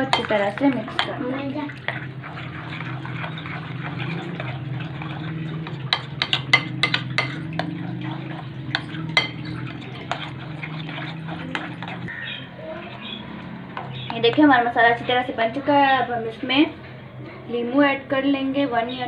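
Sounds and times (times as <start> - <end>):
spoon stirring marinade: 0.0 - 16.4
spoon clinking on glass: 5.9 - 7.8, 8.7 - 12.0.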